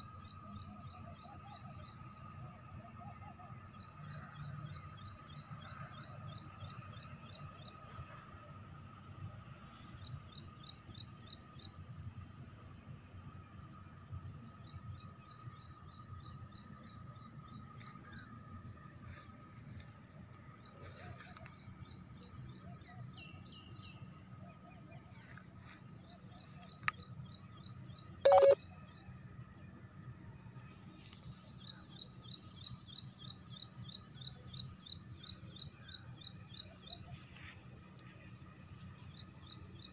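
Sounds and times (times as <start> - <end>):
faint steady high tone: 28.2 - 28.7
high chirping trill: 28.3 - 28.6.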